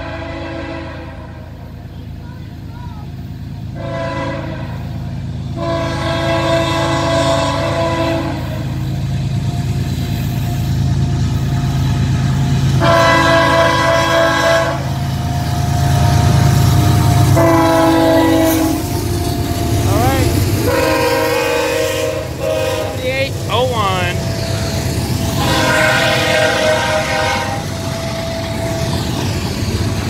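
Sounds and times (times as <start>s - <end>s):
locomotive horn blasts: 0.0s - 1.6s, 3.8s - 8.8s, 12.8s - 15.0s, 17.0s - 24.6s, 25.3s - 28.9s
diesel locomotives rumbling: 0.0s - 30.0s.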